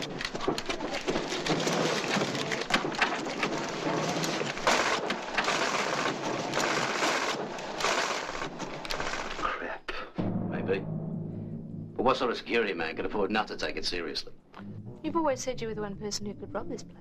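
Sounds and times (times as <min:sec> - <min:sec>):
banknote counting machine rattling: 0:00.0 - 0:09.4.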